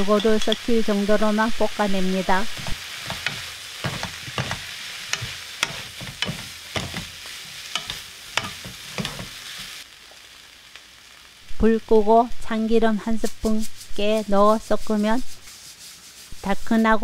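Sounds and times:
food sizzling in a frying pan: 0.0 - 17.0
wooden spatula knocking and scraping: 2.6 - 9.4.

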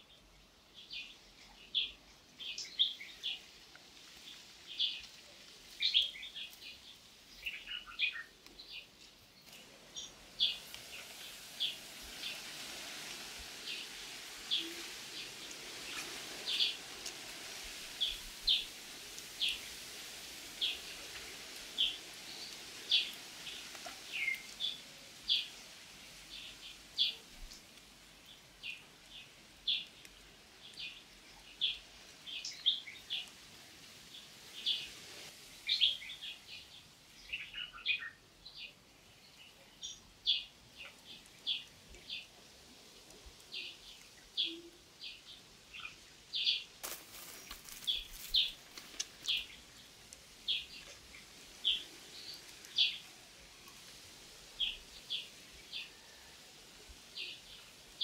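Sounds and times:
faint steady hiss: 0.0 - 58.0
small bird chirping: 43.4 - 53.2.

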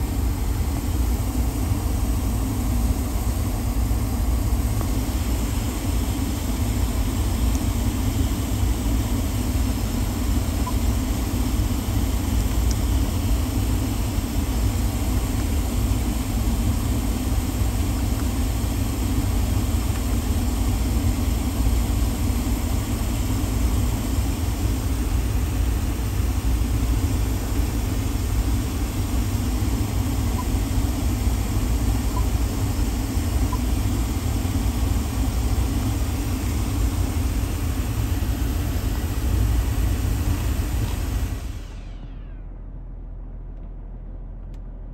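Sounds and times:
car engine idling: 0.0 - 44.9.

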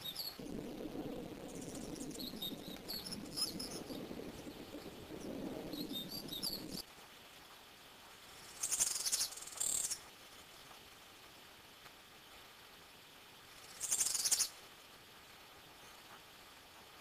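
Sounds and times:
birds chirping: 0.0 - 6.8
steady low rustling: 0.0 - 8.5.

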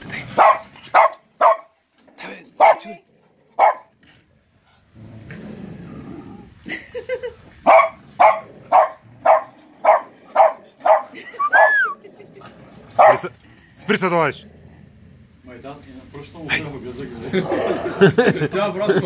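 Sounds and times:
dogs barking: 0.3 - 1.8, 2.6 - 3.0, 3.6 - 4.0, 7.6 - 12.0, 12.9 - 13.3
low rough growling sound: 1.9 - 10.9, 11.9 - 18.8.

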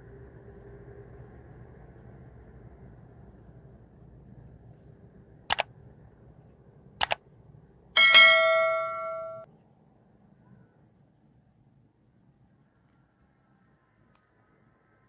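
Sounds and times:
notification bell ding: 8.0 - 9.4.

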